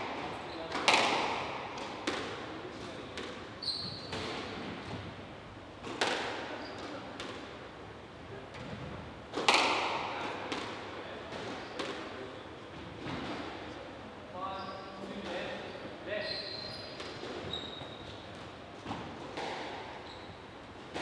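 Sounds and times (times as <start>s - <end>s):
squash ball smacks: 0.0s - 2.4s, 5.8s - 6.4s, 9.3s - 12.0s
shoe squeaking on wooden floor: 3.6s - 4.2s, 16.2s - 18.1s.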